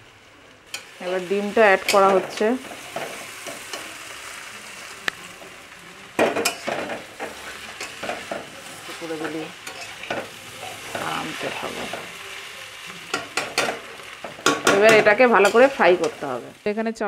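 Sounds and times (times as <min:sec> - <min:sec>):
food sizzling in a wok: 0:00.0 - 0:17.0
metal spatula scraping a pan: 0:06.2 - 0:12.2, 0:12.9 - 0:16.4.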